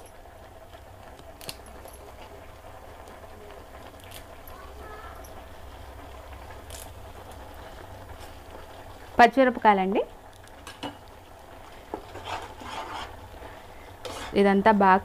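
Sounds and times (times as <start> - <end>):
paste sizzling in oil: 10.2 - 15.0
spoon stirring and knocking pan: 10.6 - 13.2, 14.0 - 14.5.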